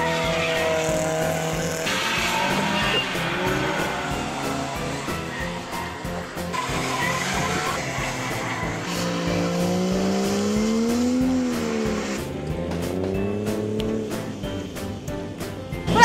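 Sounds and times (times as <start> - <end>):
tyres squealing: 0.0 - 12.3
car engine at high revs: 0.0 - 15.5.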